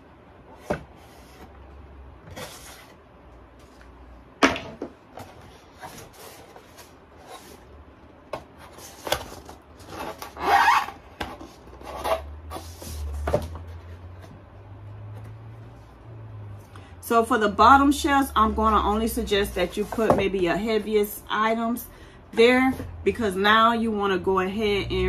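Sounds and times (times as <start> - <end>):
box scraping on cutting mat: 9.8 - 13.3.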